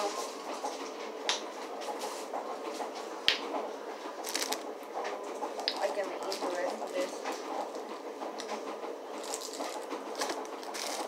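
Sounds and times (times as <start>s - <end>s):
candy wrapper rustling: 4.2s - 4.6s, 9.2s - 11.0s.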